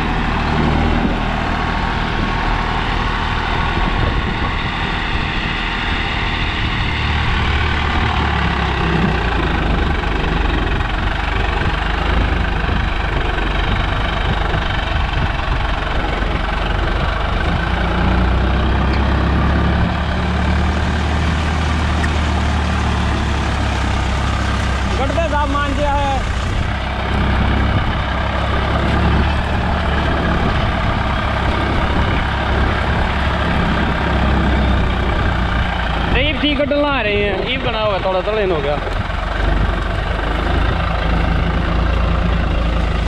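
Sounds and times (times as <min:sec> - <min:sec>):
tractor diesel engine under load: 0:00.0 - 0:43.0.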